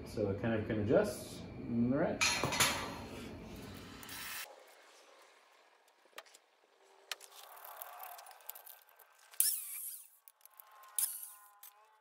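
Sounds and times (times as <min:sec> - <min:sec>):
metallic scrape with squealing: 0:07.4 - 0:12.0.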